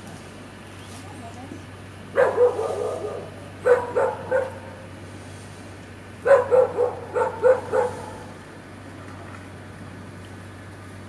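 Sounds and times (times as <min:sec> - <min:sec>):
dog barking: 0:02.1 - 0:04.8, 0:06.2 - 0:08.3.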